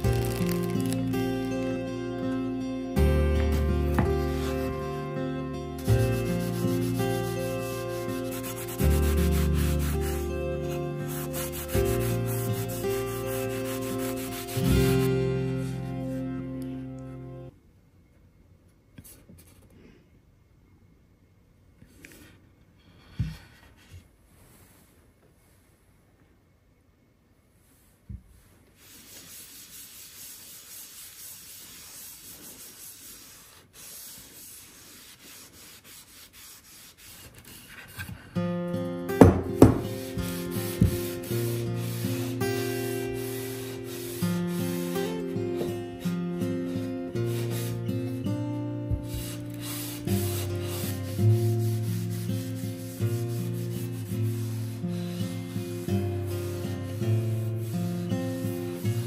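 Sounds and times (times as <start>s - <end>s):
music: 0.0s - 17.6s, 37.9s - 59.0s.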